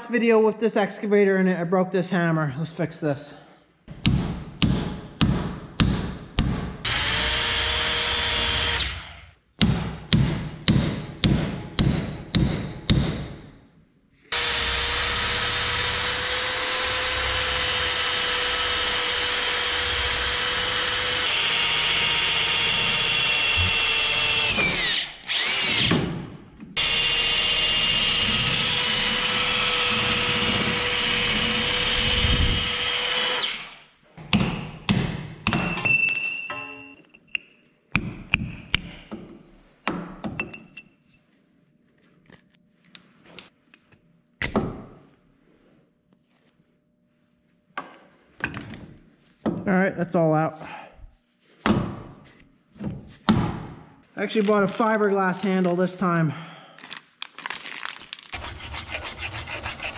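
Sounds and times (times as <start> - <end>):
electric drill boring wood: 6.9 - 9.2, 14.3 - 26.0, 26.8 - 33.8.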